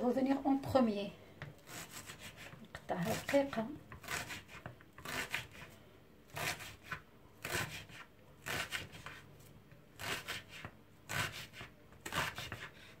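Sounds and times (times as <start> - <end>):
knife chopping on wooden board: 1.4 - 5.7, 6.3 - 9.2, 10.0 - 12.7.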